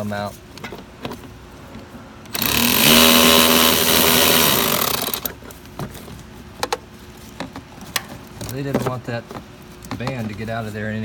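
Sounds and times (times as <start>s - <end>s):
power tool motor running: 2.3s - 5.4s.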